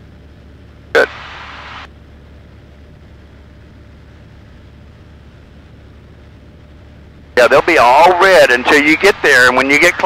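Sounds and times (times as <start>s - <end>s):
airplane engine and propeller droning: 0.0s - 10.0s.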